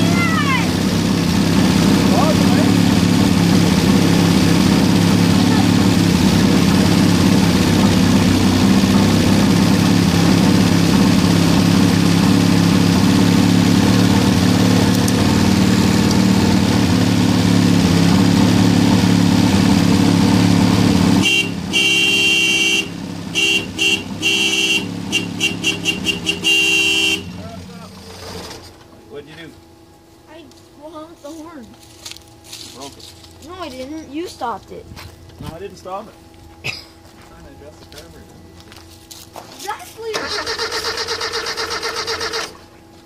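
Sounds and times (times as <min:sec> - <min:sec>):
car engine running: 0:00.0 - 0:43.0
car horn short toots: 0:21.2 - 0:27.4.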